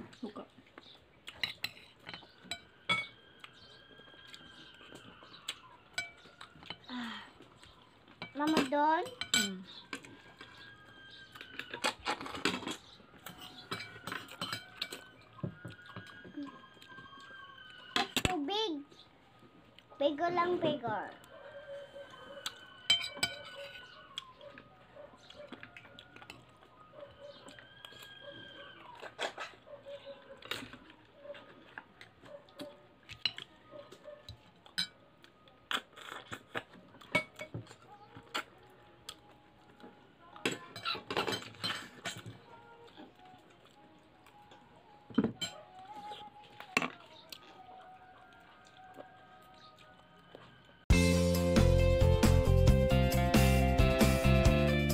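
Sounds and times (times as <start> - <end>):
metal spoons clinking on glass: 1.3 - 3.7, 5.9 - 6.9, 8.2 - 16.2, 22.4 - 24.1, 34.7 - 35.0, 37.1 - 37.8, 40.4 - 42.4, 45.1 - 45.6
rooster crowing: 13.1 - 18.2, 21.0 - 29.2, 47.7 - 50.8.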